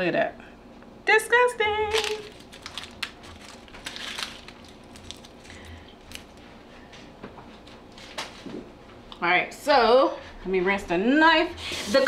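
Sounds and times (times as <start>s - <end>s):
onion skin crinkling: 1.9s - 6.7s.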